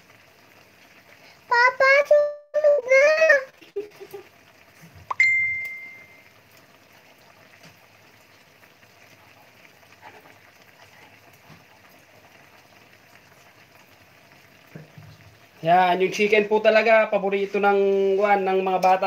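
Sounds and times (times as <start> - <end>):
liquid simmering in a wok: 0.0 - 2.0, 2.9 - 19.0
bright ding: 5.1 - 6.2.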